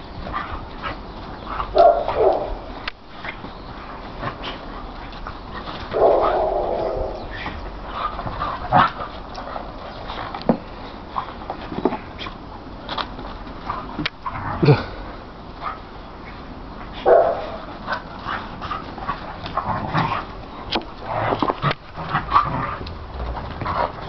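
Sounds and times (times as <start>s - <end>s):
dogs yipping and barking: 0.2s - 10.2s, 17.0s - 24.0s.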